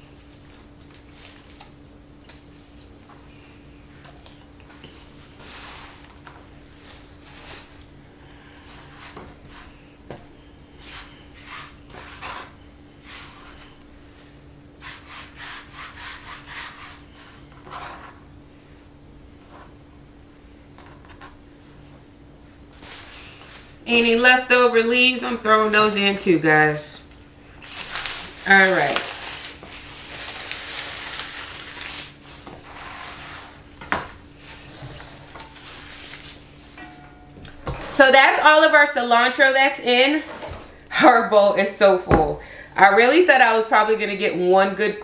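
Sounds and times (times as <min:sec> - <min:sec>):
plastic bag crinkling: 0:00.0 - 0:03.1, 0:27.5 - 0:32.5, 0:34.4 - 0:36.7
faint steady hum: 0:00.0 - 0:45.0.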